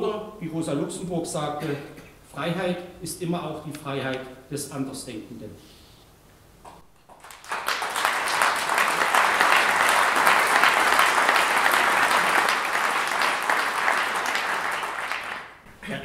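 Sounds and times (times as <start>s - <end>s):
audience applauding: 7.0s - 15.7s.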